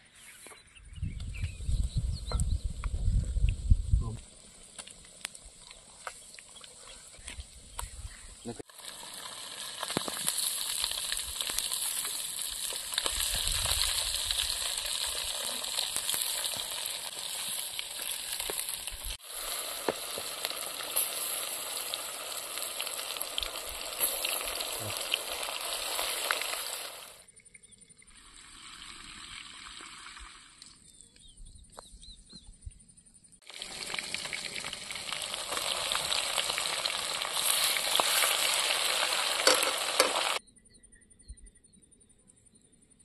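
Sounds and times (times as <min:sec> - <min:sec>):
fish sizzling in hot oil: 0:08.6 - 0:27.2, 0:33.4 - 0:40.4.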